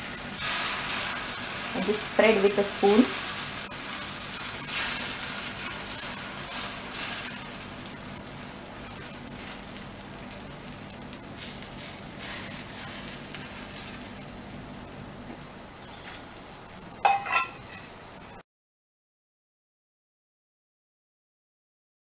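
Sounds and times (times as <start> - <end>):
batter sizzling on iron griddle: 0.0 - 18.4.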